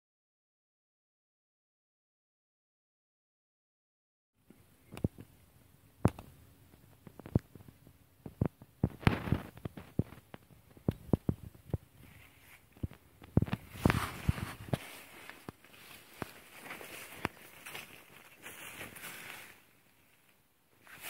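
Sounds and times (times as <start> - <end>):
sharp clicks and snaps: 6.0 - 11.8
stalks brushing and rustling: 12.0 - 21.0
footsteps through tall stalks: 13.5 - 19.8.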